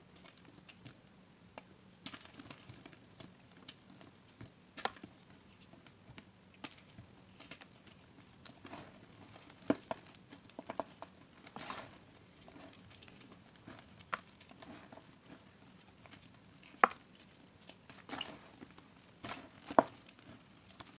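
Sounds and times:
soft powdery rustling: 6.8s - 21.0s.

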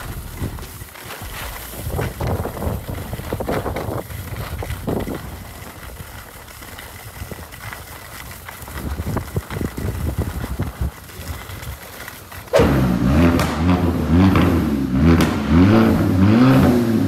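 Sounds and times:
skis scraping over snow: 0.0s - 17.0s
wind rumbling on microphone: 0.0s - 17.0s.

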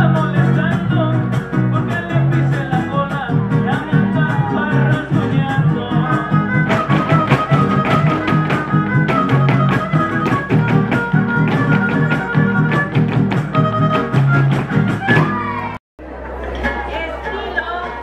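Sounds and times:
string music: 0.1s - 18.0s
dancers stamping feet: 6.4s - 15.5s.

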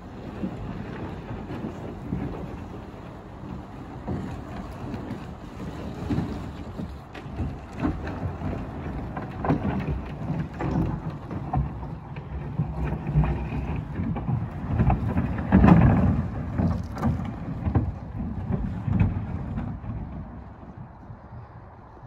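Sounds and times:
wooden platform scraping on gravel: 3.4s - 20.4s.

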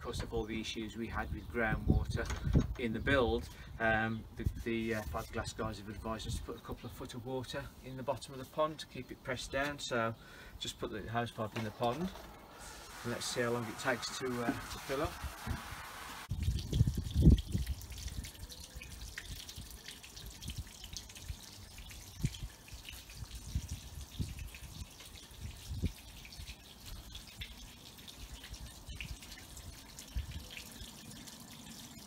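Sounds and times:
water splashing on fibreglass: 11.6s - 32.0s.

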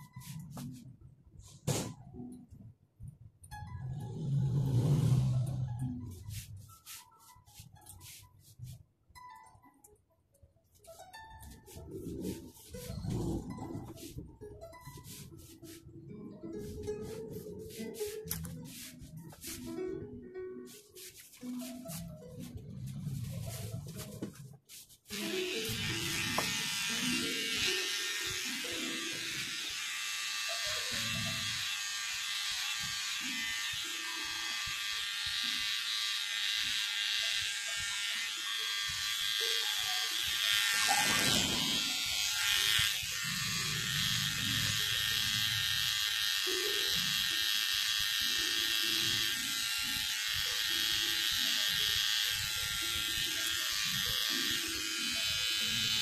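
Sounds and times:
electric hair clippers buzzing: 25.1s - 56.0s.

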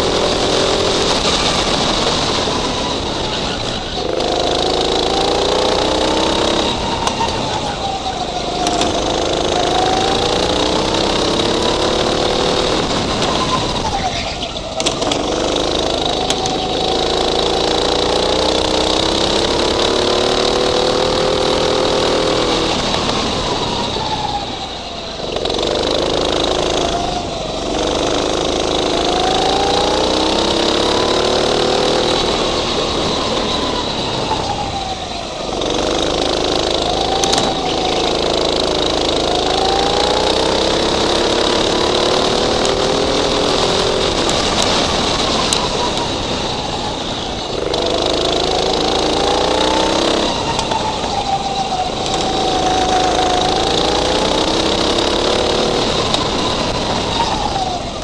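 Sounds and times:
go-kart engine revving: 0.0s - 58.0s.

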